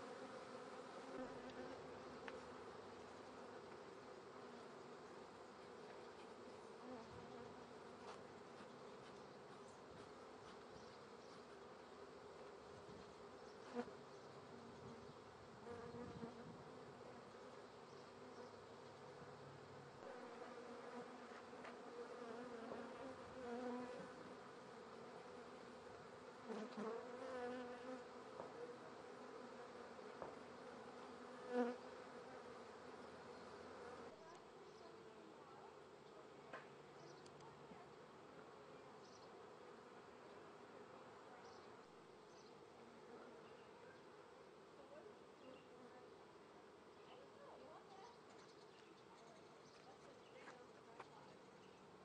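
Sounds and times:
honeybee swarm buzzing: 0:00.0 - 0:04.3, 0:19.2 - 0:34.1.

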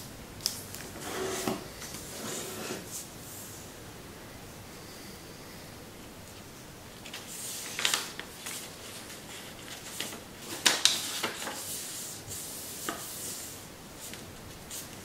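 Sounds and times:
paper rustling and crinkling: 0:07.0 - 0:15.0.

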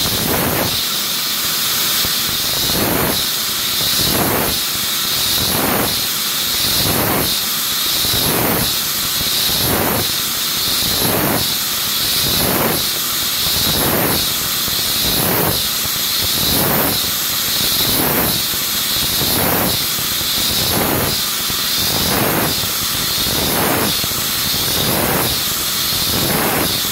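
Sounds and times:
hiss of coolant spray: 0:00.0 - 0:26.9
milling machine cutter whine: 0:00.0 - 0:26.9.

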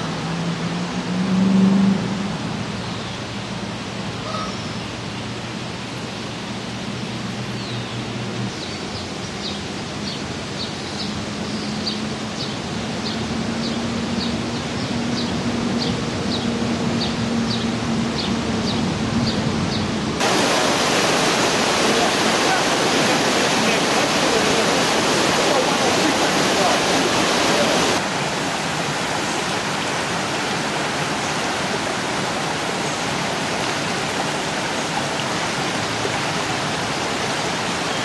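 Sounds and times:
outdoor background rush: 0:00.0 - 0:38.0
water pouring over dam: 0:20.2 - 0:38.0.

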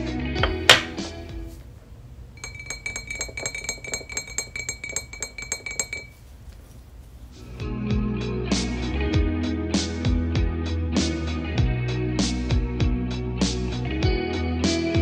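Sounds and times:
spoon clinking in glass carafe: 0:02.3 - 0:06.4
sharp glass clink: 0:02.4 - 0:06.2.

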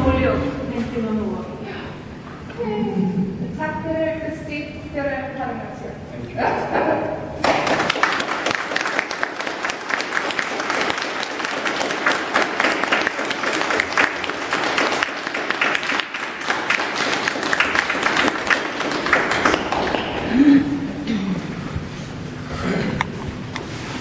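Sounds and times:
audience applauding: 0:07.4 - 0:20.7.

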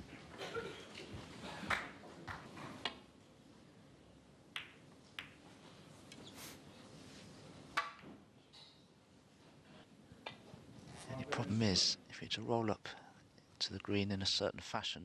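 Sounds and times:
snooker balls clicking: 0:04.5 - 0:05.6.

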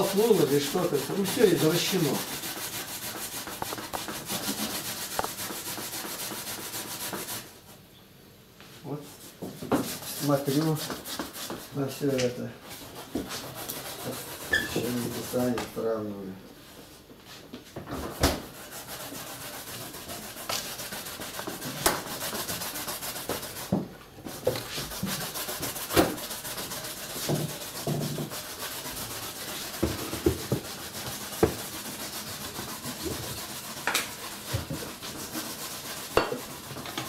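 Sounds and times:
vegetables grated on metal grater: 0:00.0 - 0:07.4
grater knocking against board: 0:31.4 - 0:31.6.

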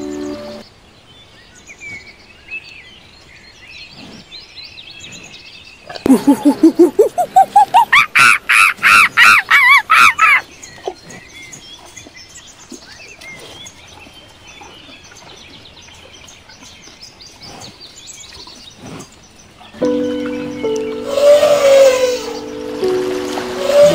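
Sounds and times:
faint forest ambience: 0:00.0 - 0:23.9
monkey hooting call: 0:06.1 - 0:10.4, 0:21.0 - 0:22.6, 0:23.5 - 0:23.9
bird chirps: 0:06.1 - 0:11.6, 0:17.5 - 0:23.9.

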